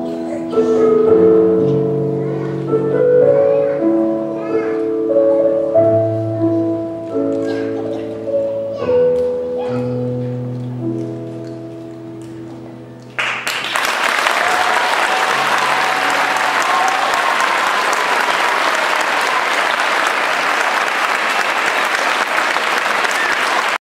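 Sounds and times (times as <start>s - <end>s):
audience applause: 13.2s - 23.8s.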